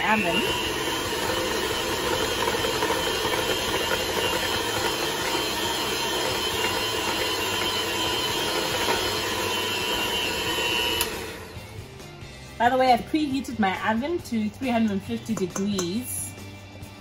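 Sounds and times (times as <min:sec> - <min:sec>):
electric hand mixer whine: 0:00.0 - 0:11.8.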